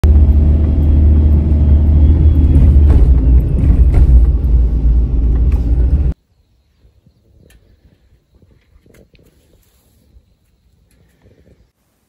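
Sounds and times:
road and wind noise in car: 0:00.0 - 0:06.2.

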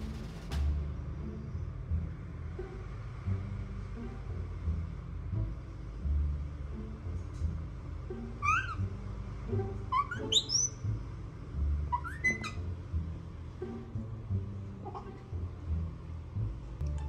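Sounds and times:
low rumble: 0:00.0 - 0:17.0
baby monkey squeaking: 0:08.4 - 0:09.0, 0:09.8 - 0:10.9, 0:11.8 - 0:12.7, 0:14.8 - 0:15.2.

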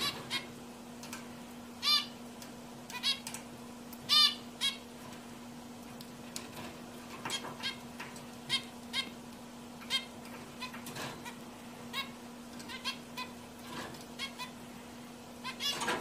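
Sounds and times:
finches giving sharp calls: 0:01.8 - 0:02.2.

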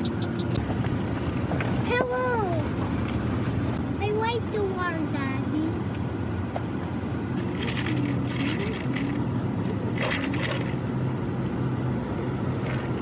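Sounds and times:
car engine hum and road noise: 0:00.0 - 0:13.0
crackling scrapes: 0:07.4 - 0:10.8.

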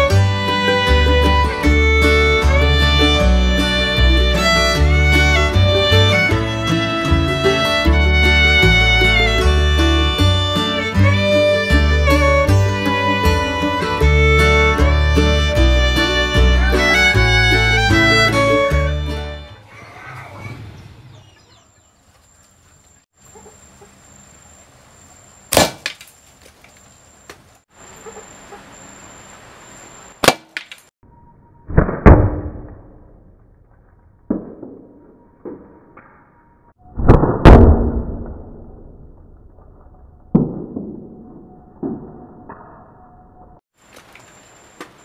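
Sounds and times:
slingshot snapping: 0:25.5 - 0:26.7, 0:30.2 - 0:30.9
projectile hitting target: 0:31.6 - 0:36.0, 0:36.9 - 0:43.1.

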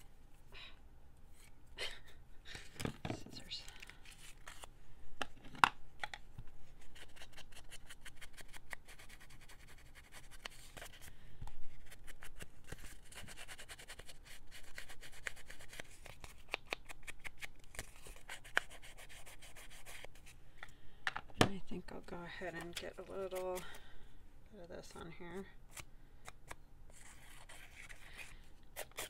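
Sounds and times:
paper rustling and scratching: 0:26.9 - 0:29.0.

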